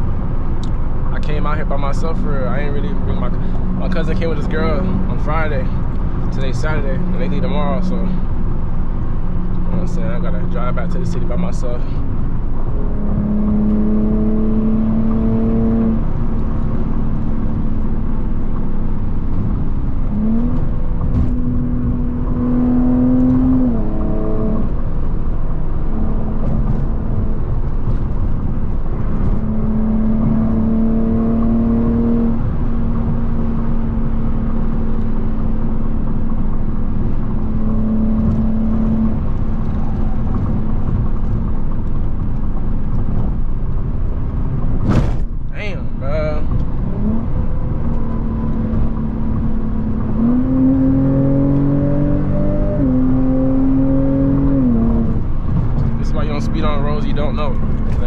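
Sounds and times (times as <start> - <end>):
car engine drone: 0.0 - 58.0
road rumble: 0.0 - 58.0.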